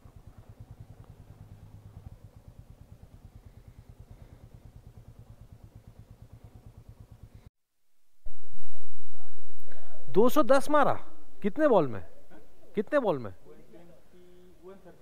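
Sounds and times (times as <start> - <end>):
motorcycle engine idling: 0.0 - 7.5.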